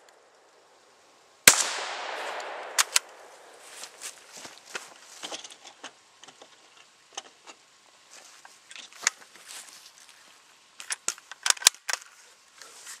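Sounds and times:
clicks and crunches: 1.5 - 7.6, 10.8 - 12.2.

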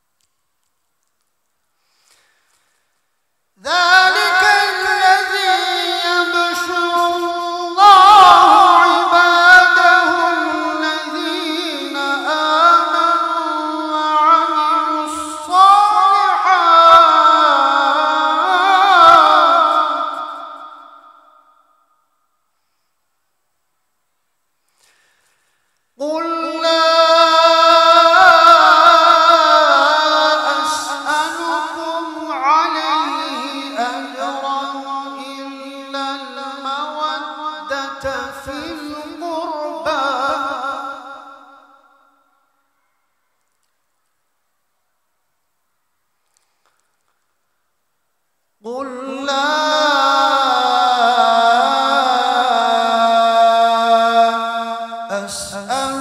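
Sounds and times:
man reciting melodically: 3.5 - 21.8, 24.7 - 42.2, 48.6 - 56.0.

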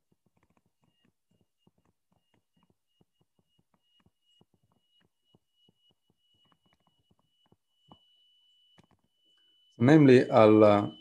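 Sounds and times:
stylus tapping on tablet screen: 0.0 - 9.8
faint high tone: 9.3 - 11.0.

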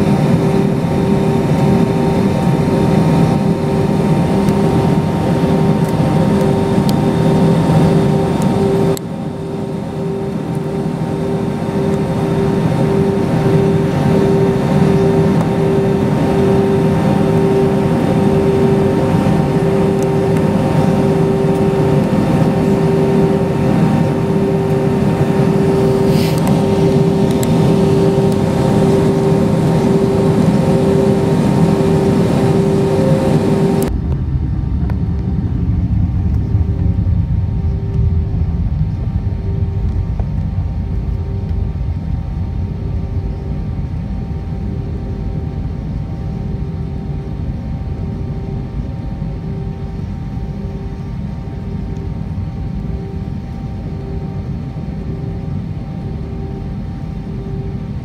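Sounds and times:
jet engines idling rumble: 0.0 - 58.0
pulsing hum: 0.0 - 58.0.

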